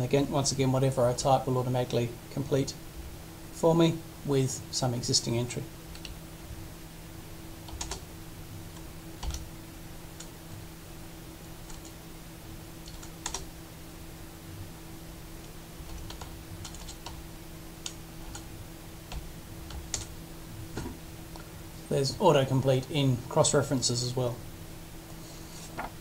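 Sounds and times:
faint steady hum: 0:00.0 - 0:26.0
keyboard typing: 0:07.6 - 0:08.0, 0:08.8 - 0:09.5, 0:11.6 - 0:12.0, 0:12.8 - 0:13.5, 0:15.8 - 0:17.2, 0:19.1 - 0:20.1.

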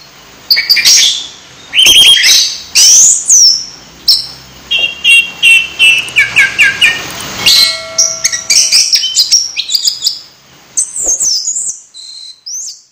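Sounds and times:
songbird chirping and whistling: 0:00.0 - 0:12.9.

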